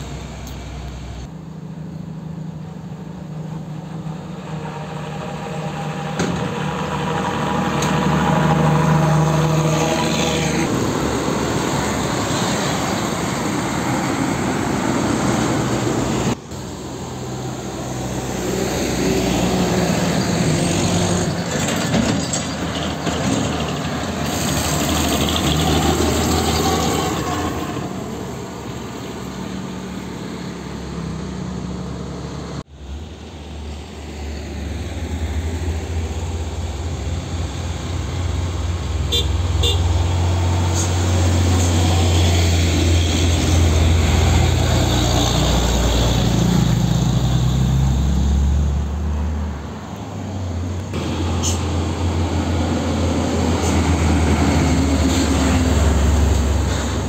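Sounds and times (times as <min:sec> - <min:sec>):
diesel truck engine rumble: 0:00.0 - 0:57.0
truck horn toots: 0:39.0 - 0:40.1.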